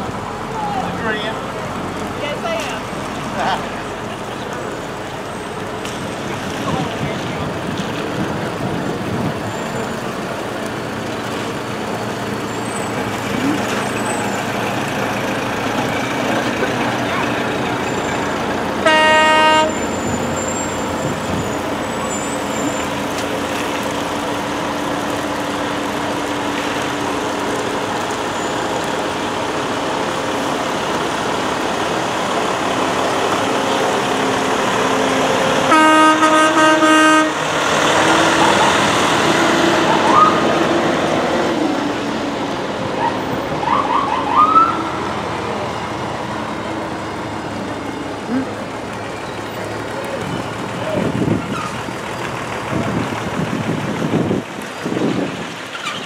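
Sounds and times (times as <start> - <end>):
fire truck engines running: 0.0 - 56.0
loud horn blasts: 18.8 - 21.5, 35.6 - 37.6
rising siren chirps: 43.0 - 45.0.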